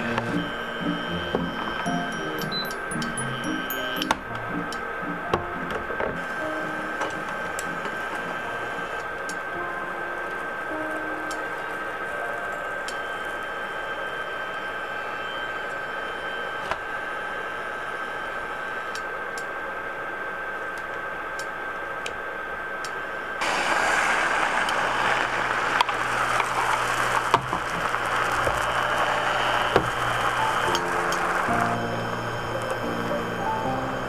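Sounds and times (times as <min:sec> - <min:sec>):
steady hum: 0:00.0 - 0:34.0
egg sizzling in a frying pan: 0:23.4 - 0:33.2.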